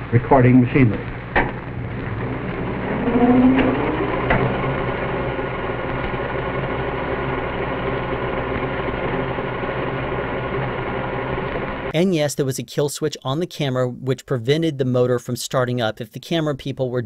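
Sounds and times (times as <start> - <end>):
steady mechanical hum: 0.0 - 11.9
machinery motors whining: 0.8 - 11.9.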